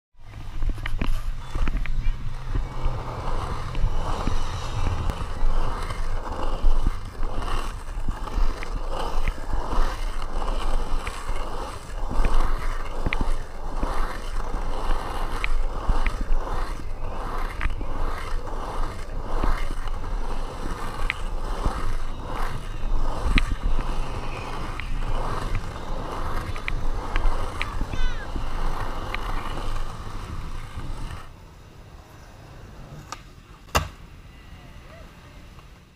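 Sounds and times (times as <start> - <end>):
skateboard wheels rolling on asphalt: 0.2 - 35.9.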